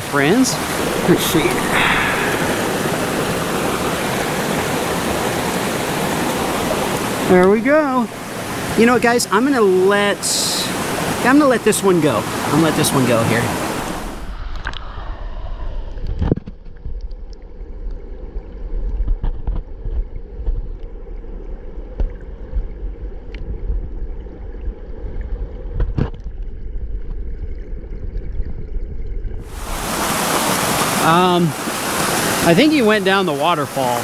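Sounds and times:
small waterfall hissing: 0.0s - 14.2s, 29.5s - 34.0s
muffled underwater stream rush: 0.0s - 34.0s.

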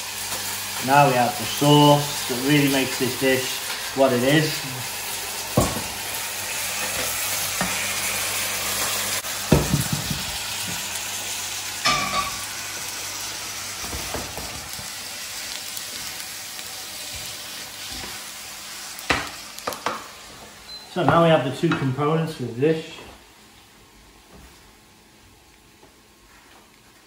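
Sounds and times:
food sizzling in a hot pan: 0.0s - 20.7s.

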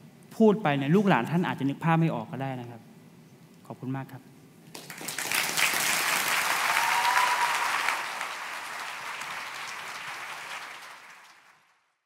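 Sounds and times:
audience applauding: 4.7s - 12.0s.

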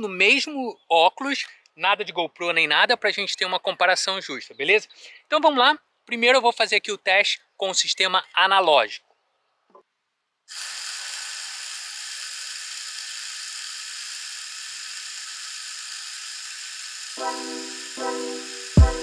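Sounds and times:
background music with sustained chords: 17.2s - 19.0s.

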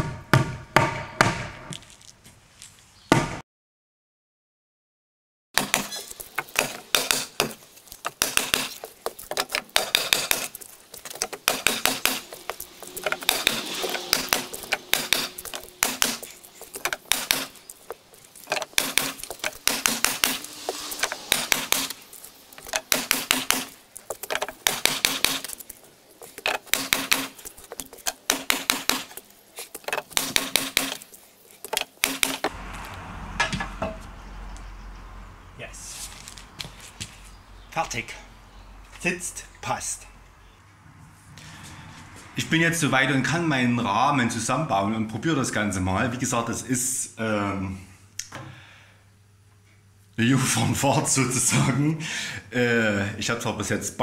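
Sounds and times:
hand tool clicking on timber: 5.6s - 32.5s.

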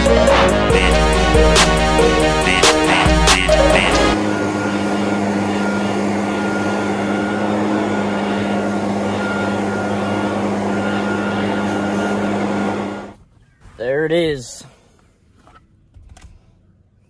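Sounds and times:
hip-hop beat: 0.0s - 4.2s
leaf blower running: 0.0s - 13.2s.

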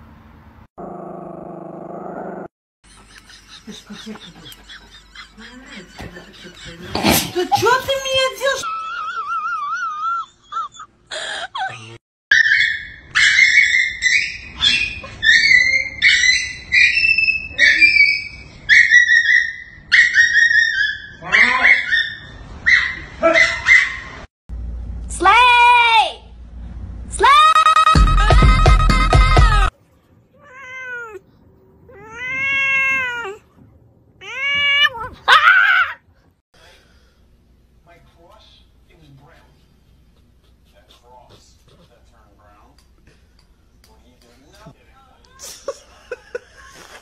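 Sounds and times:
puppy whining: 9.1s - 23.9s
loud music: 27.7s - 29.7s
cat meowing: 30.3s - 31.2s, 31.8s - 33.5s, 34.2s - 35.4s.

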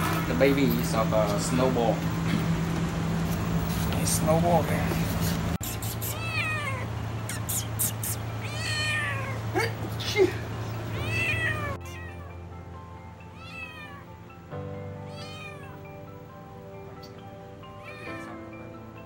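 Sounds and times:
cat meowing: 6.0s - 7.5s, 8.2s - 9.6s, 10.9s - 12.4s, 13.3s - 14.2s, 15.0s - 16.0s, 17.6s - 18.4s
background music: 11.0s - 19.0s.

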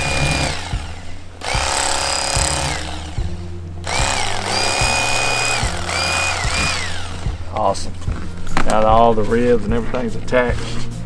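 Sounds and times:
electric knife motor whirring: 0.0s - 7.5s.

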